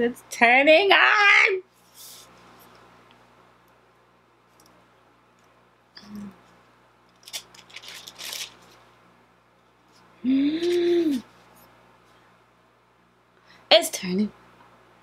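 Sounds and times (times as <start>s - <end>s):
crisp rustles: 7.1s - 8.9s.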